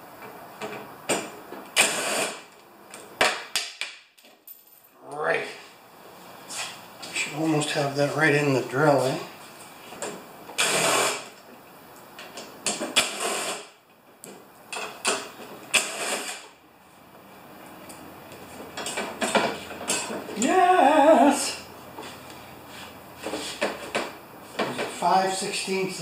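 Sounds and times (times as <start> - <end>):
person's voice: 7.1 - 9.3, 20.3 - 21.7, 25.0 - 26.0.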